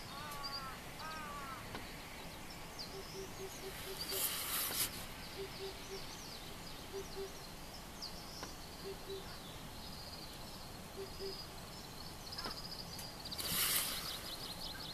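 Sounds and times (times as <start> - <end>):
small birds twittering: 0.0 - 14.9
cuckoo low double hoot: 5.4 - 6.1, 11.0 - 11.4.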